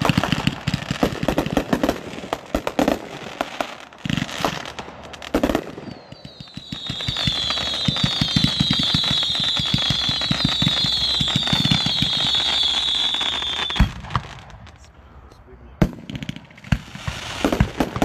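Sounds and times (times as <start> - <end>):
shrill firework whistling: 5.6 - 14.4.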